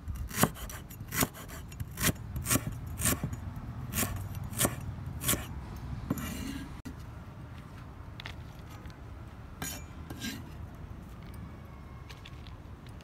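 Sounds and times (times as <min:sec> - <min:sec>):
blade scraping board: 0:00.2 - 0:05.5, 0:06.1 - 0:06.8, 0:09.6 - 0:10.6
cleaver chopping on wooden board: 0:00.2 - 0:05.5.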